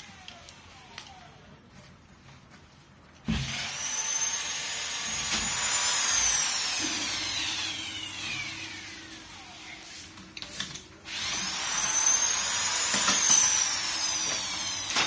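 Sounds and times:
electric tool motor whine: 0:03.3 - 0:10.1, 0:11.0 - 0:15.0.

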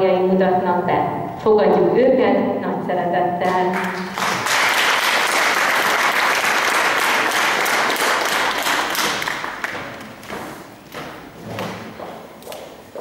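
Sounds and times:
audience applauding: 0:03.7 - 0:10.1.

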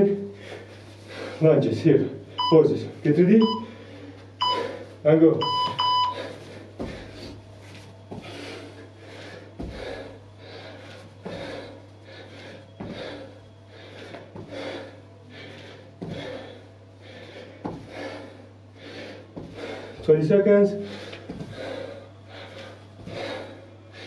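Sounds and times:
hard rhythmic breathing: 0:00.0 - 0:24.0
low steady hum: 0:00.0 - 0:24.0
feet landing on tiled floor: 0:06.8 - 0:07.4, 0:09.6 - 0:10.0, 0:17.6 - 0:18.0.

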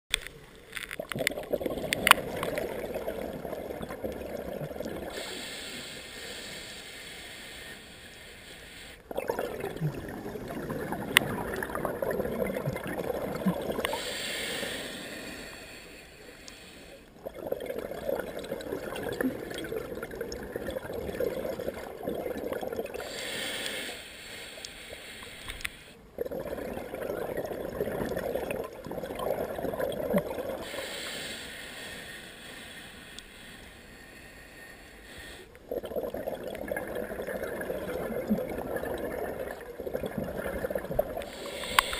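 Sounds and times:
exhale bubbling underwater: 0:01.0 - 0:05.6, 0:09.1 - 0:15.6, 0:17.2 - 0:23.2, 0:26.1 - 0:30.8, 0:35.6 - 0:41.9
hissing regulator inhale: 0:05.1 - 0:09.1, 0:13.8 - 0:17.2, 0:23.0 - 0:26.0, 0:30.6 - 0:35.7, 0:41.2 - 0:41.9.

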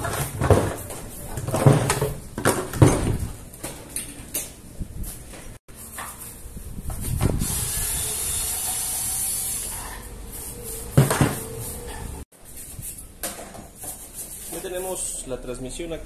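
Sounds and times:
cordless screwdriver running: 0:07.4 - 0:09.6.

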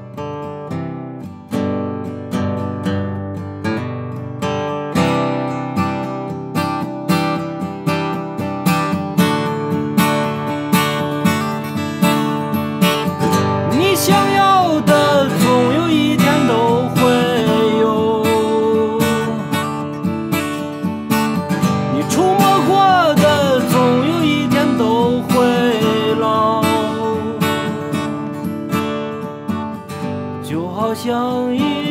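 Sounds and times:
acoustic guitar strumming: 0:00.0 - 0:31.9
man singing: 0:13.3 - 0:20.0, 0:21.7 - 0:28.4, 0:30.4 - 0:31.9.

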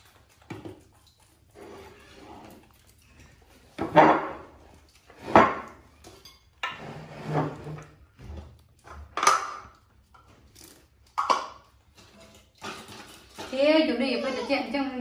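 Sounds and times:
plastic lids and dishes clattering: 0:03.7 - 0:13.9.

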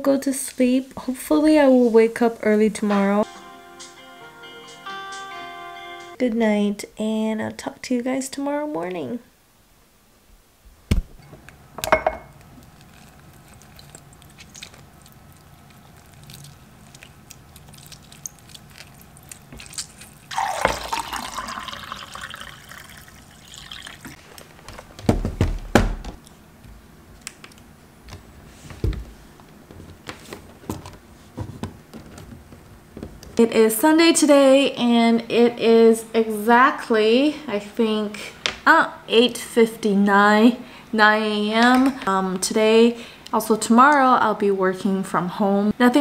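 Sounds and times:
juice running into a glass: 0:12.9 - 0:24.2
knocks and clatter of handling: 0:24.5 - 0:26.2, 0:28.1 - 0:33.4.

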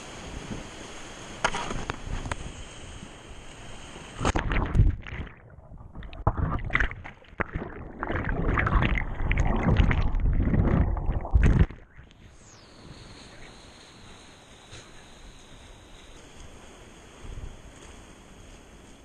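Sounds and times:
muffled churning underwater: 0:00.1 - 0:19.0.

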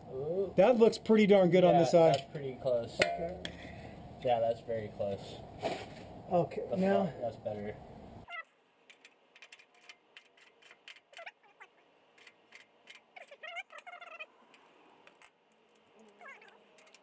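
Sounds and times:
warbling animal calls: 0:11.1 - 0:11.9, 0:12.9 - 0:14.4, 0:16.0 - 0:17.0.

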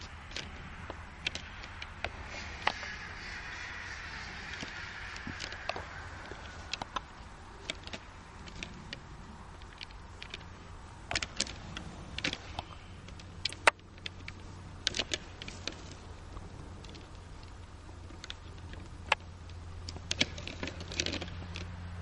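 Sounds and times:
low rumble: 0:00.0 - 0:13.5
antlers clacking together: 0:00.0 - 0:21.8.

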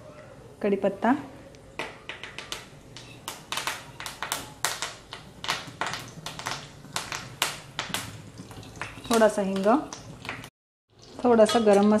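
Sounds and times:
seeds spluttering in hot oil: 0:02.4 - 0:12.0.

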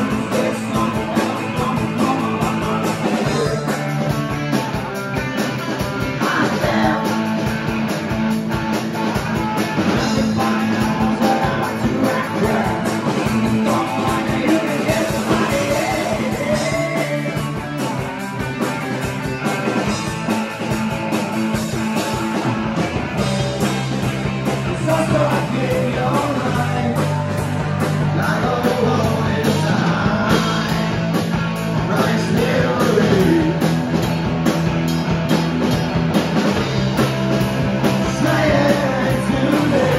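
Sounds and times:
person singing: 0:00.0 - 0:03.9, 0:06.1 - 0:07.4, 0:10.0 - 0:17.6, 0:24.6 - 0:27.5, 0:28.1 - 0:31.2, 0:31.8 - 0:33.7, 0:38.0 - 0:39.9
bass guitar low notes: 0:00.0 - 0:39.9
drum kit with cymbal hits: 0:00.0 - 0:39.9
electric guitars: 0:00.0 - 0:39.9.

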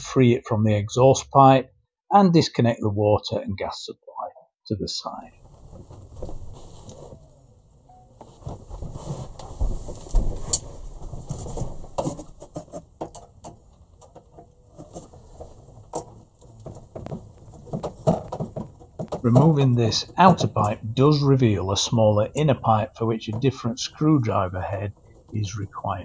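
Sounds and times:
hands clicking and knocking on pipe: 0:15.9 - 0:20.8.

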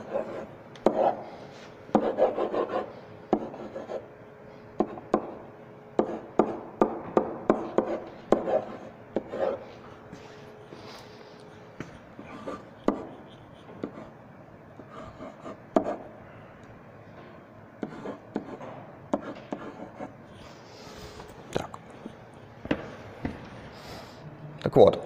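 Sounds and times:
pen tapping on whiteboard: 0:00.8 - 0:01.1, 0:01.9 - 0:02.6, 0:03.3 - 0:03.8, 0:04.8 - 0:05.4, 0:06.0 - 0:09.4, 0:12.8 - 0:13.1, 0:15.7 - 0:16.0, 0:17.8 - 0:20.0.

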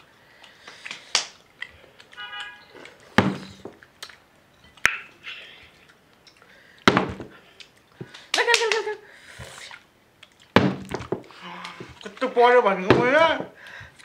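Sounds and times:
bottle thudding on table: 0:10.6 - 0:11.2.

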